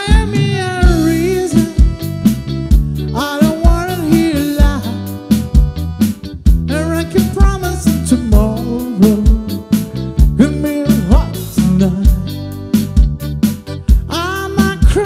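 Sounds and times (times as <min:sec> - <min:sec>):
man singing lead: 0:00.0 - 0:02.2, 0:03.0 - 0:05.4, 0:06.7 - 0:12.7, 0:14.0 - 0:15.0
drum kit beat: 0:00.0 - 0:15.0
electric bass: 0:00.0 - 0:15.0
electric guitar: 0:00.0 - 0:15.0
keyboard: 0:00.0 - 0:15.0.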